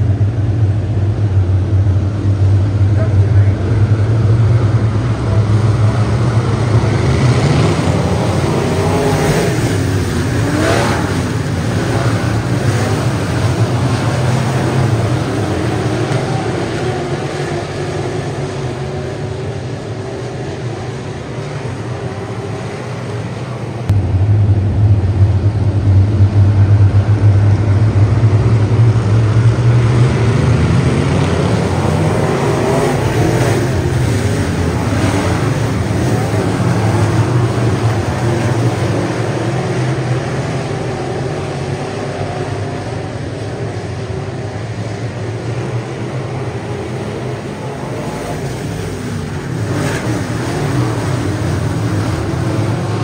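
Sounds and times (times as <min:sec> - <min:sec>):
race car engines droning: 0:00.0 - 0:53.0.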